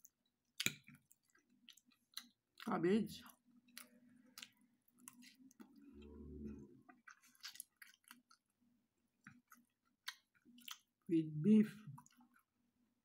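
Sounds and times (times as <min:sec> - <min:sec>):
quiet chewing with smacks: 0:00.0 - 0:11.1, 0:11.7 - 0:12.9
brief low hum: 0:05.8 - 0:06.9.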